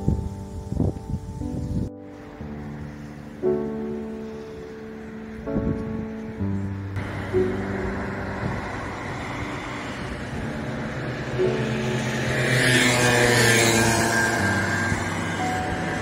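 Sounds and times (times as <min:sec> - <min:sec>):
street traffic: 0:00.0 - 0:16.0
motor scooter passing: 0:02.1 - 0:05.4, 0:06.9 - 0:16.0.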